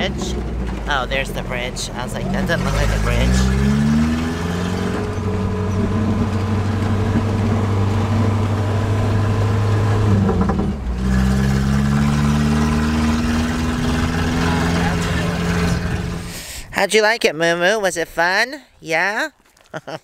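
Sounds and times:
vehicle engine running: 0.0 - 16.5.

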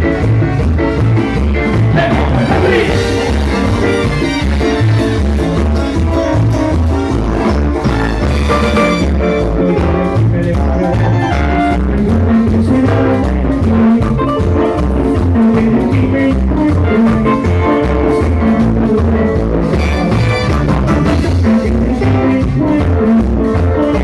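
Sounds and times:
latin dance band playing: 0.0 - 24.0
repeating bass line: 0.0 - 24.0.

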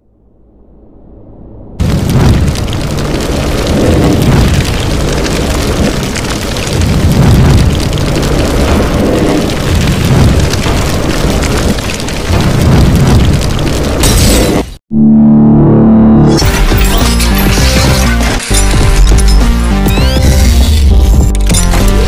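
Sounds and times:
deep explosive booms: 0.0 - 14.8
continuous fiery rush: 1.8 - 14.8.

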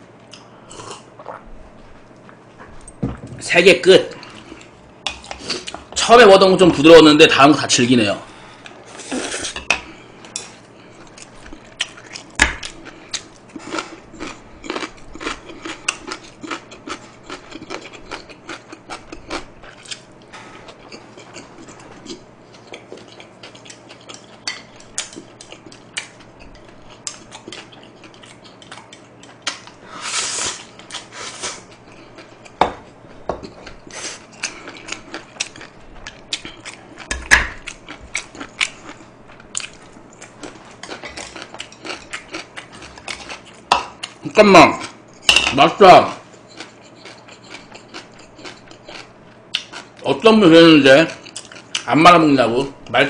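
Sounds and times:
chewing: 10.2 - 29.8, 30.6 - 44.2, 46.2 - 50.0, 51.1 - 51.9.

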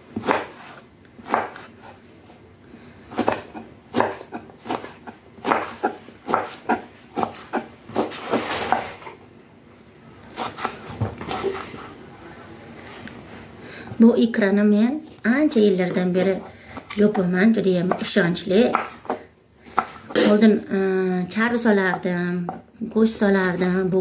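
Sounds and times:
knife chopping on wooden board: 0.2 - 1.7, 3.1 - 8.9, 10.4 - 11.7, 17.8 - 20.4.

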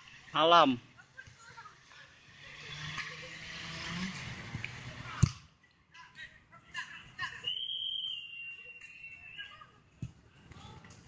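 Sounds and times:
referee's whistle blast: 7.5 - 8.7.

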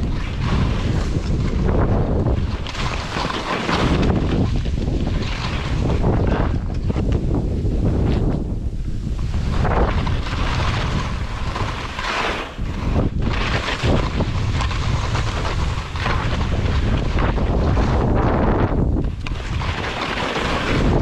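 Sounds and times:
wind rushing over microphone: 0.0 - 21.0
skis hissing through snow: 10.2 - 15.9, 19.4 - 20.9.

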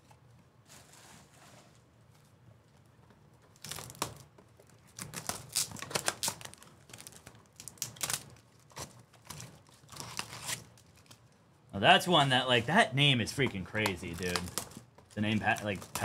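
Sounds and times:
wrapper crinkling: 3.5 - 11.4, 13.3 - 16.0.

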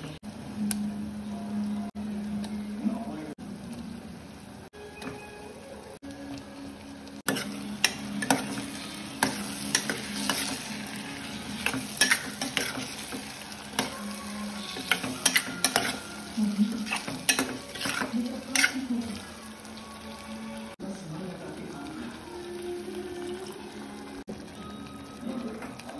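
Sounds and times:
vegetables sizzling in oil: 0.0 - 25.9
spatula scraping and knocking pan: 7.3 - 10.8, 11.5 - 14.0, 14.6 - 16.1, 16.8 - 18.9.

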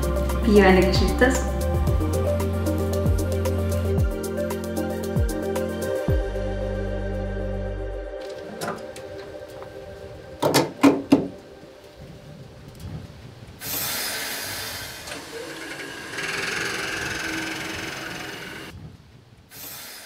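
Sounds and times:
gas hissing: 13.6 - 18.7, 19.5 - 20.0.

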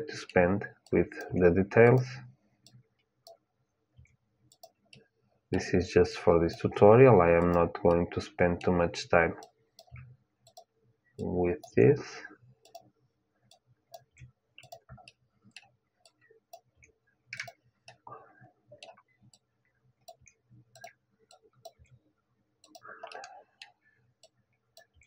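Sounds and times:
mouse and keyboard clicks: 0.2 - 3.4, 4.0 - 5.0, 6.5 - 6.8, 7.4 - 8.0, 9.4 - 11.8, 12.6 - 12.9, 13.5 - 16.7, 17.4 - 18.0, 20.1 - 22.0, 22.6 - 25.0.

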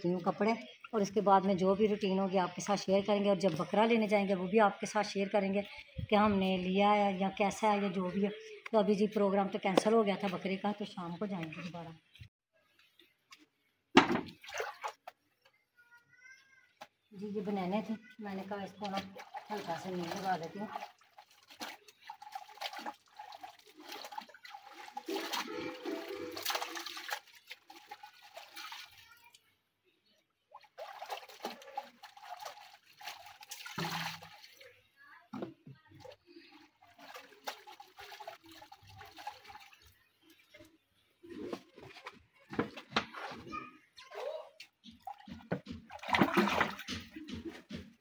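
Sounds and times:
water splashing in a plastic tub: 12.8 - 15.2, 17.1 - 29.4, 30.4 - 48.0
clothes being wrung out: 14.3 - 15.2, 17.8 - 29.4, 30.5 - 34.8, 35.9 - 40.6
hose running into tub: 17.8 - 29.3, 30.6 - 34.8, 36.6 - 40.0, 44.9 - 47.8.

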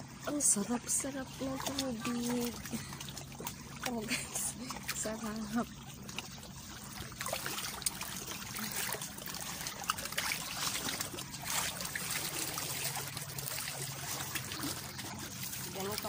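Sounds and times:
seawater lapping among rocks: 0.0 - 16.0
small water splashes and drips: 0.0 - 16.0.

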